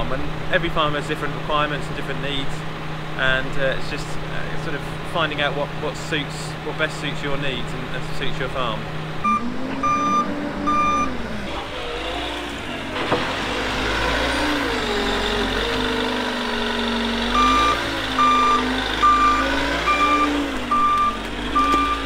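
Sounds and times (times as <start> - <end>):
diesel engine revving: 0.0 - 22.0
reversing alarm beeps: 9.2 - 11.1, 17.4 - 22.0.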